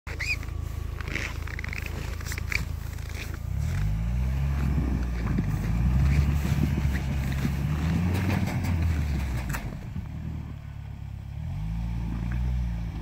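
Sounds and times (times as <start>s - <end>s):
short high squeaks: 0.1s - 3.8s
car engine revving: 0.1s - 13.0s.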